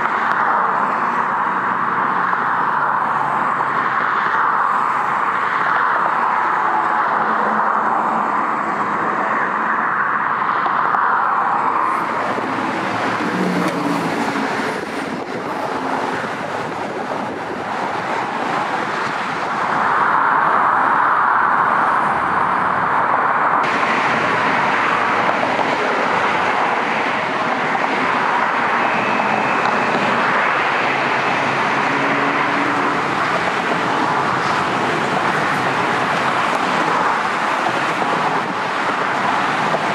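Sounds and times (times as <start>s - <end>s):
road traffic noise: 0.0s - 39.9s
light rail train running: 10.9s - 20.9s, 23.6s - 39.9s.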